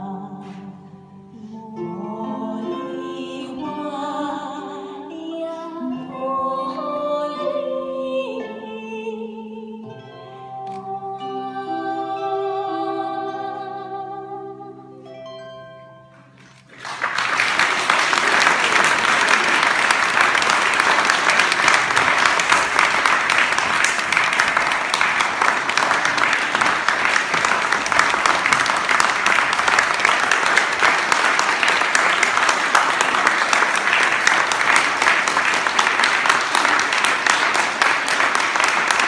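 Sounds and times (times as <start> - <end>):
music: 0.0 - 18.0
audience applause: 16.6 - 39.0.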